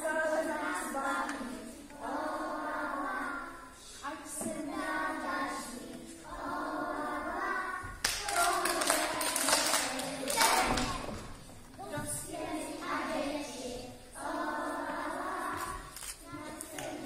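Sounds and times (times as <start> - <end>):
young children singing: 0.0 - 17.0
applause: 8.0 - 11.1.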